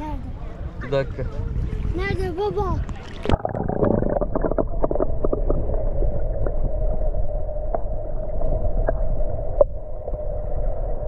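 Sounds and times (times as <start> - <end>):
muffled underwater rumble: 0.0 - 11.0
clicks and bubble pops: 3.2 - 6.6.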